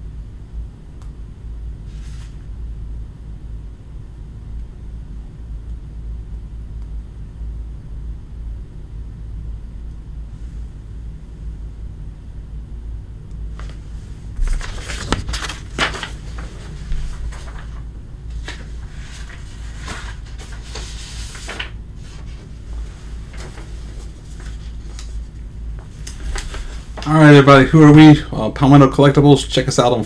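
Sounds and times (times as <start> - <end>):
low hum: 0.0 - 28.7
rustling: 13.6 - 27.5.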